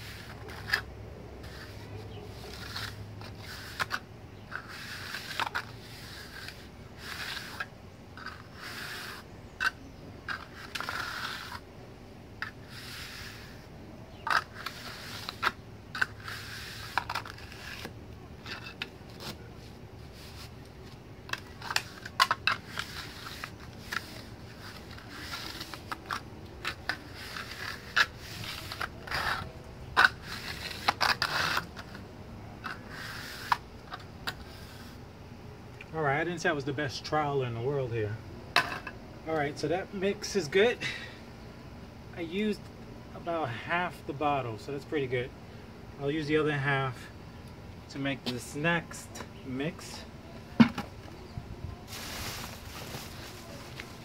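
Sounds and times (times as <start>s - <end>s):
trowel scraping wet mortar: 0.0s - 11.6s, 12.4s - 19.5s, 21.3s - 32.0s, 32.6s - 35.0s.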